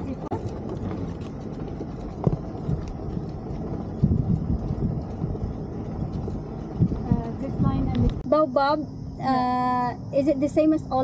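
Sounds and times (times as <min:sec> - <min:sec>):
cart rolling on dirt track: 0:00.0 - 0:08.3.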